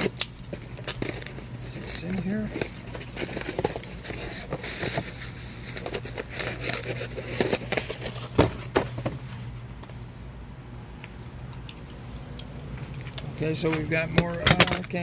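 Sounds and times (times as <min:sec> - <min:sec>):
cardboard and plastic packaging crackling: 0:00.0 - 0:09.6.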